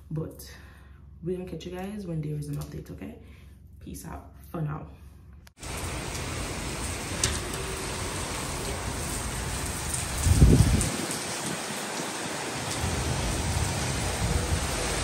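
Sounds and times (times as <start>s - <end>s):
steady rain falling: 5.6s - 15.0s.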